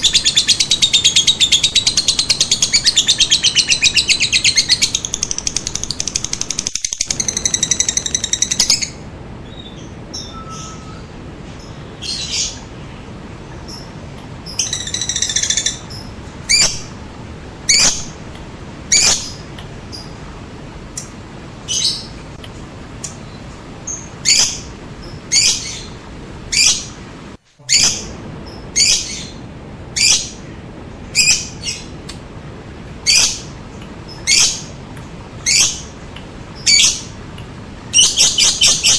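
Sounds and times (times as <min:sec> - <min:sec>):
bird chattering trill: 0:00.0 - 0:09.0
shrill bird chirps: 0:00.0 - 0:12.7, 0:13.6 - 0:16.8, 0:37.9 - 0:38.9
steady low hiss: 0:00.0 - 0:38.9.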